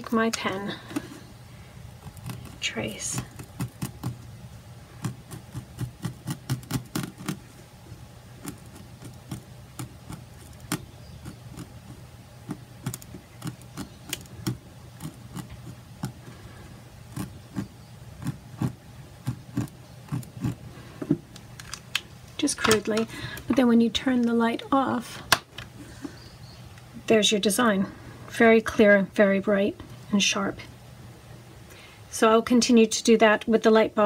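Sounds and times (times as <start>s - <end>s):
steady low hum: 0.0s - 34.0s
pen tapping and scratching: 2.1s - 4.2s, 5.0s - 7.5s, 8.4s - 16.2s, 17.1s - 20.6s.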